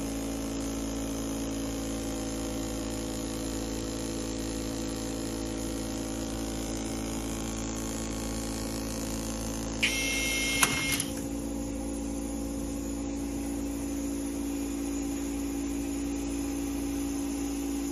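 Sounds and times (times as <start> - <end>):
sharp click: 9.8 - 11.2
electric screwdriver whining: 9.8 - 11.3.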